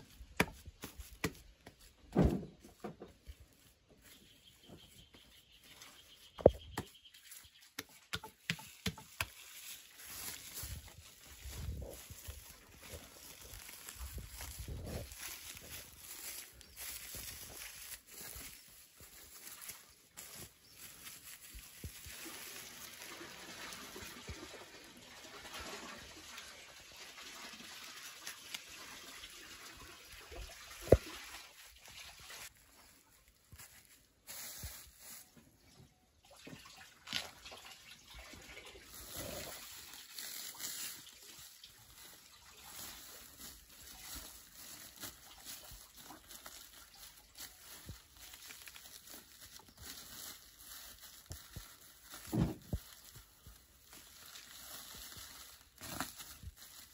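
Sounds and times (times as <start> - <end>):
plastic sack rustling: 8.5 - 24.4, 30.3 - 35.4, 38.1 - 56.9
liquid trickling: 36.2 - 47.8.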